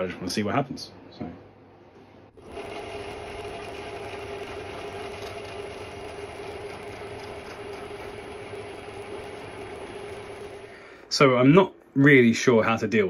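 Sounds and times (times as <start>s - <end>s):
metal cutting noise: 2.4s - 10.9s
milling machine hum: 2.4s - 11.1s.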